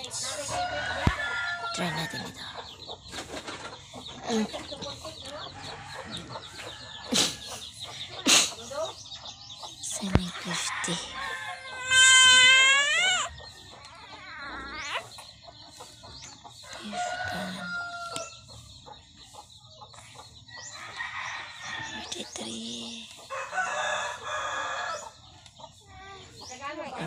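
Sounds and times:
chickens clucking: 0.0 - 27.0
rooster crowing: 16.8 - 18.3, 23.3 - 25.1.

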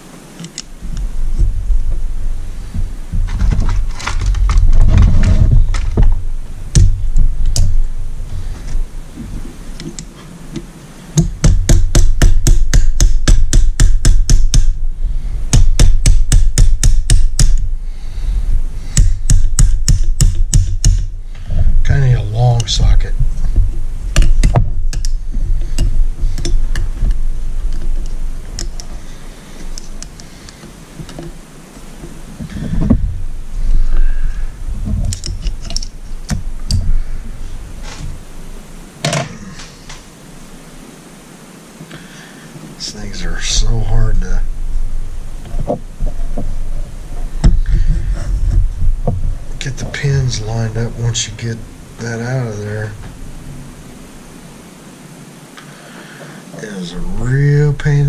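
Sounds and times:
mallet striking a metal punch: 11.2 - 14.8, 15.6 - 17.6, 19.0 - 21.1.

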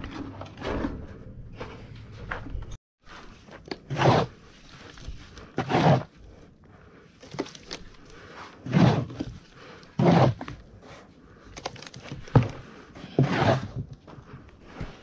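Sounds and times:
trowel scraping cement: 3.3 - 6.4, 7.4 - 10.7, 12.2 - 14.0.

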